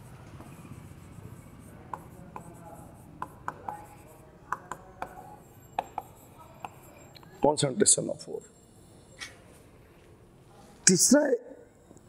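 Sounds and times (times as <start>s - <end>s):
faint scratching on board: 0.0s - 7.5s.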